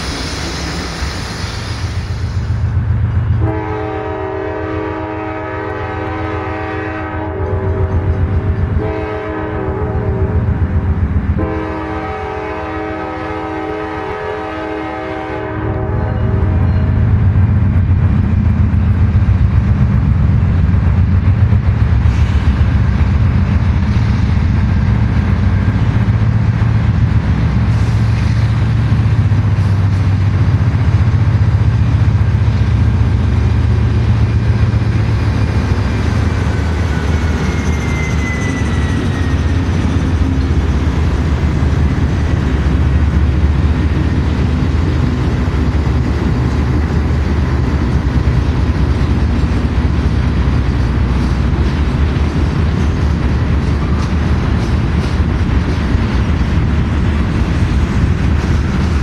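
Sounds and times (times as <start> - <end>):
high squeal: 0.0 - 2.6, 35.3 - 40.4
diesel locomotive engines droning: 0.0 - 59.0
wheels rumbling on rail: 0.0 - 59.0.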